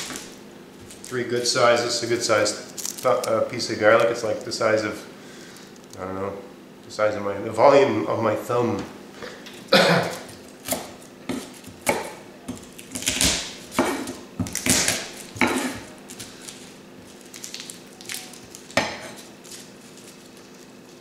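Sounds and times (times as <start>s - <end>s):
garlic crunching: 2.3s - 4.8s, 10.0s - 21.0s.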